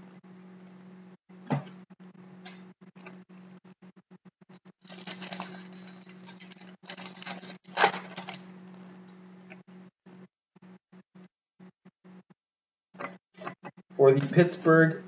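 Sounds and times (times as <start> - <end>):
foil wrapper crinkling: 4.6 - 8.5
cards rustling: 4.8 - 8.4.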